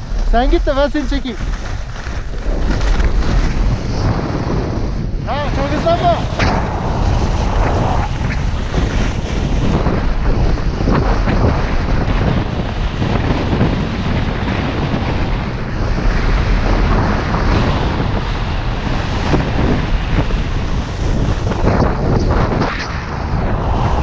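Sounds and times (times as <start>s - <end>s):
skis scraping on snow: 0.0s - 12.3s
wind buffeting microphone: 0.0s - 24.0s.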